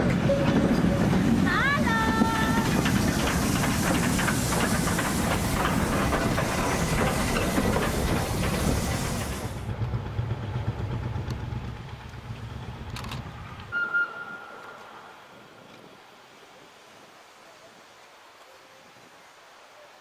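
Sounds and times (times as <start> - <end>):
rapid clicks of train wheels: 0.0 - 13.7
train rumble: 0.0 - 13.8
steam hissing: 0.1 - 9.7.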